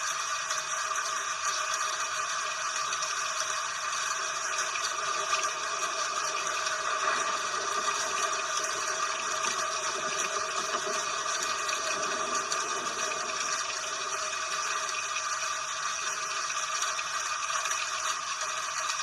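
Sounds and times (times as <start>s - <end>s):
steady rain: 4.0s - 16.8s.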